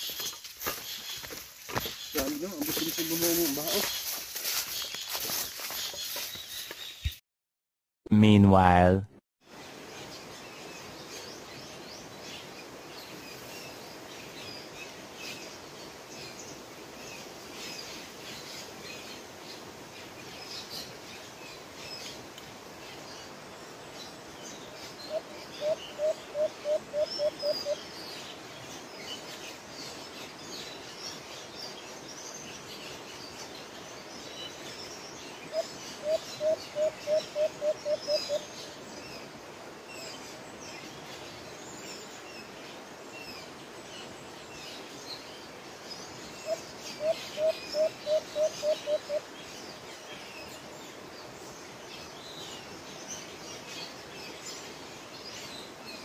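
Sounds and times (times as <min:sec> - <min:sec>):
small birds chirping: 0:00.0 - 0:07.2
dove cooing: 0:25.2 - 0:27.8, 0:35.6 - 0:38.4.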